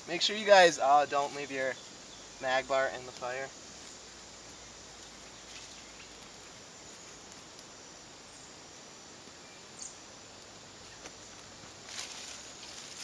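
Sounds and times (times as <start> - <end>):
fire crackling softly: 0.0 - 13.0
small fire hissing: 0.0 - 13.0.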